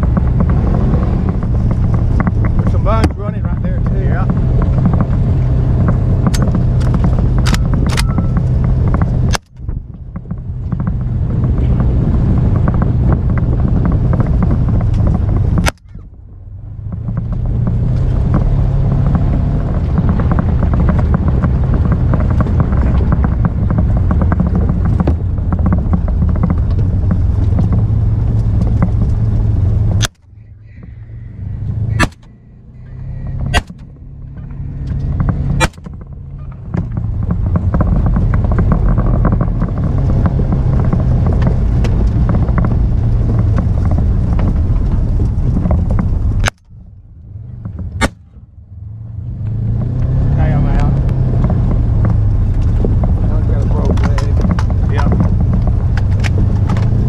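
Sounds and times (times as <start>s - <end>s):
vehicle motor running: 0.0s - 57.0s
sharp knocks: 16.8s - 28.0s, 31.9s - 44.6s.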